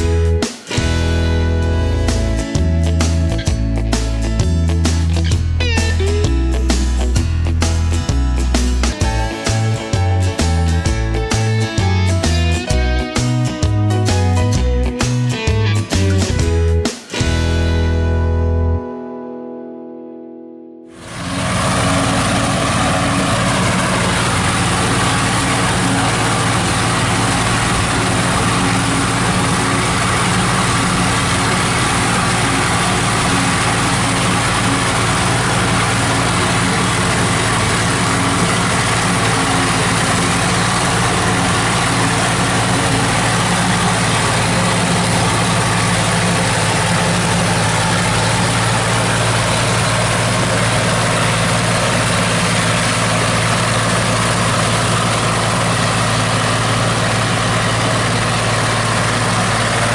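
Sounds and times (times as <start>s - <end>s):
engine drone: 0.0s - 18.8s, 20.9s - 59.9s
forage harvester chopping: 21.1s - 59.9s.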